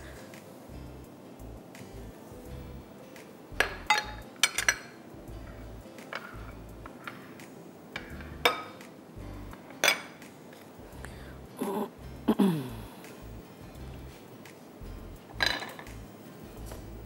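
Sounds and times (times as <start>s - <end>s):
utensils clinking against dishes: 3.6s - 5.1s, 6.0s - 8.9s, 9.5s - 10.8s, 15.3s - 16.0s.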